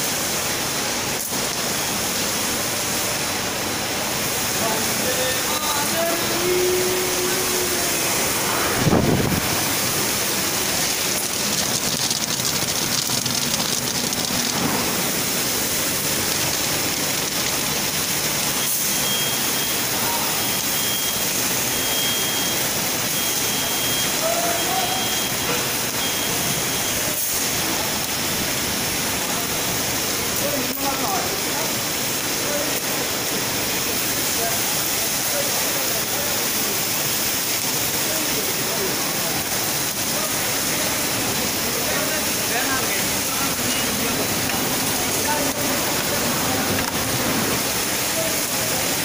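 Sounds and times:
machinery rushing noise: 0:04.6 - 0:18.6
short high beeps: 0:18.6 - 0:22.6.

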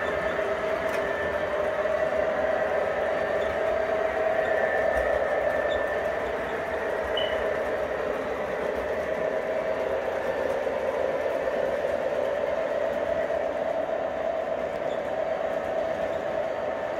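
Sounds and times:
model train running on track: 0:00.0 - 0:16.9.

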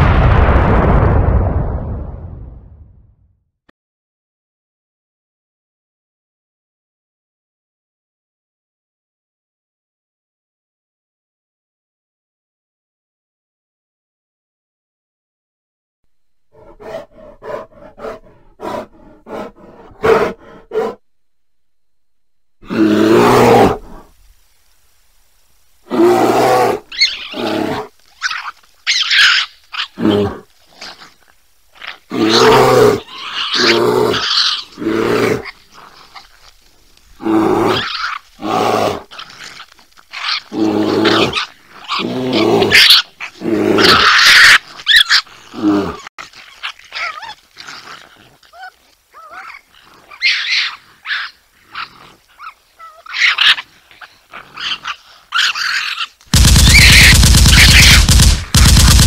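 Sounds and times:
raccoon growling and barking: 0:16.5 - 0:21.0, 0:22.6 - 0:24.2, 0:25.8 - 0:59.0.

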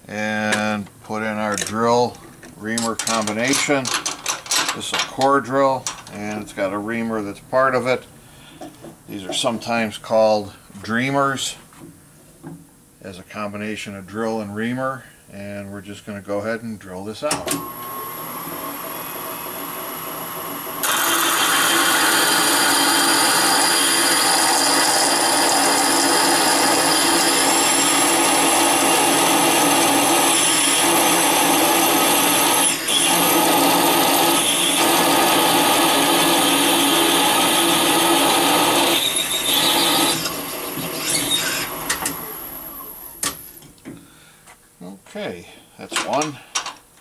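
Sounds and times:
drill cutting metal with high whine: 0:17.6 - 0:43.4.

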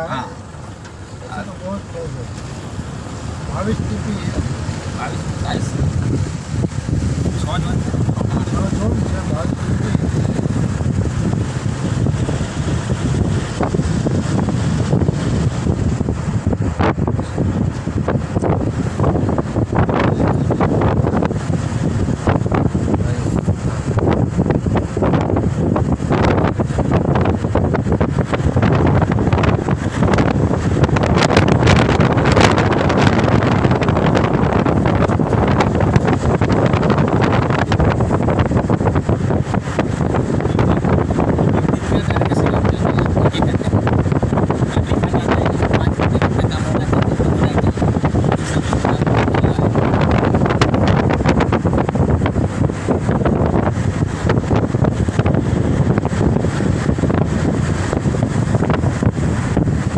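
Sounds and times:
car road noise: 0:00.0 - 0:59.9
wind buffeting microphone: 0:00.0 - 0:59.9.

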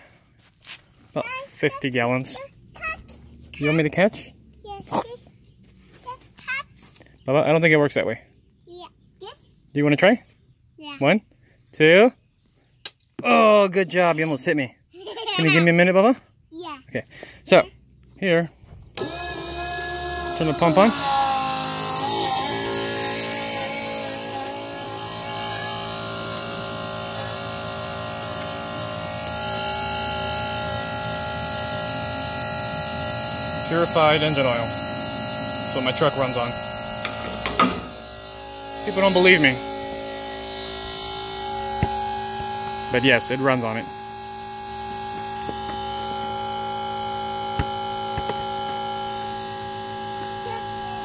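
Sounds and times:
electric pump humming: 0:19.0 - 0:51.0.

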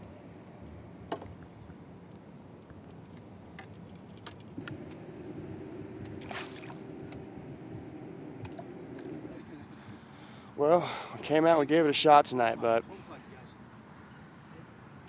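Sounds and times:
water lapping at boat: 0:04.0 - 0:10.4
steady low hum: 0:04.6 - 0:11.4.

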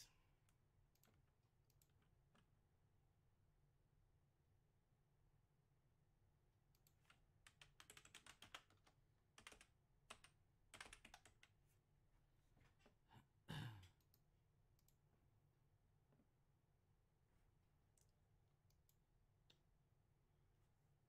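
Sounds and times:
keyboard typing: 0:06.8 - 0:11.6.

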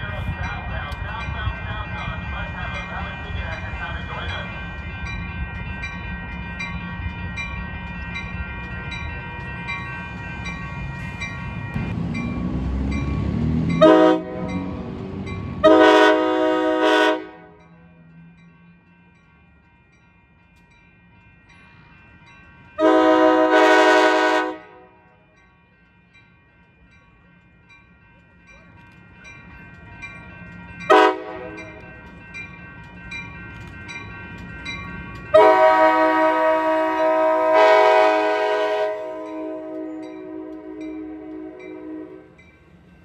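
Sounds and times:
rumble of approaching train: 0:00.0 - 0:43.0
locomotive air horn: 0:13.8 - 0:14.6, 0:15.6 - 0:17.6, 0:22.8 - 0:25.0, 0:30.9 - 0:31.6, 0:35.3 - 0:42.3.

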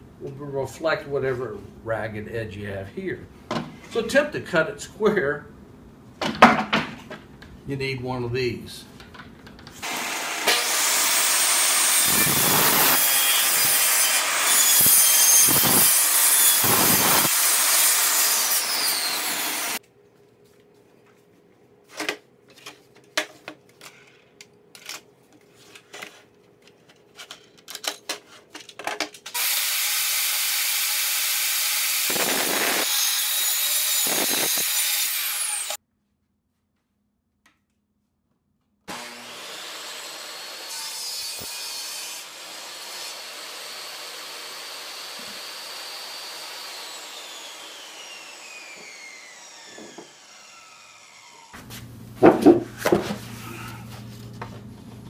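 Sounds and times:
knocks of wooden boards: 0:06.2 - 0:07.2, 0:52.2 - 0:53.2
table saw cutting wood: 0:09.8 - 0:19.8, 0:29.4 - 0:35.8, 0:38.9 - 0:51.6.

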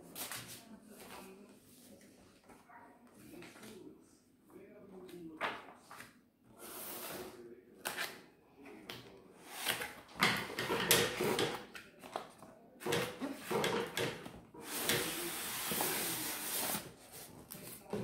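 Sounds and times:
paper and cardboard rustling: 0:14.8 - 0:18.0.

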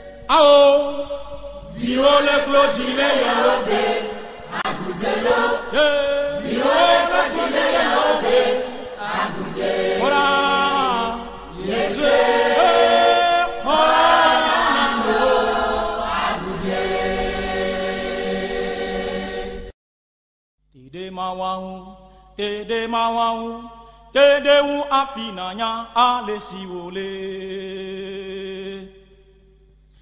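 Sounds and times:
group singing slow chant: 0:00.0 - 0:19.7.

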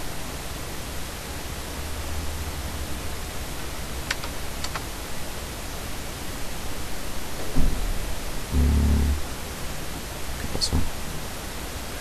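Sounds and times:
microphone hiss: 0:00.0 - 0:12.0
computer mouse clicks: 0:04.1 - 0:04.9
low hum: 0:08.4 - 0:09.4.

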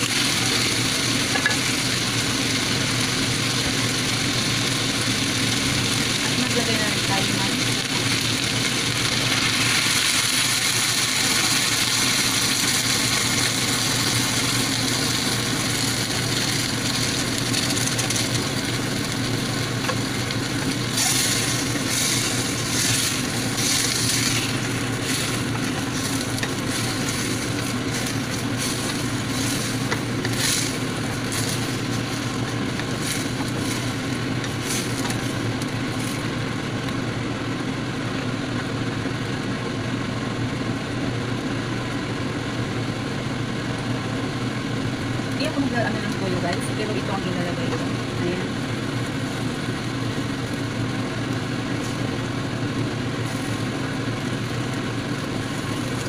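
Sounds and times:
food sizzling in a pot: 0:00.0 - 0:36.6, 0:47.8 - 0:56.0.

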